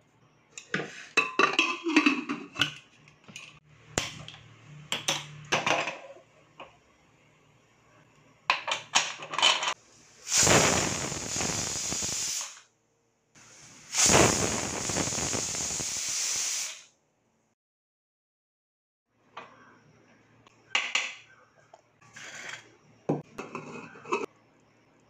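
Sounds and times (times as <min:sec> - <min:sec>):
steady rushing hiss: 0:09.8 - 0:12.6, 0:13.4 - 0:16.8.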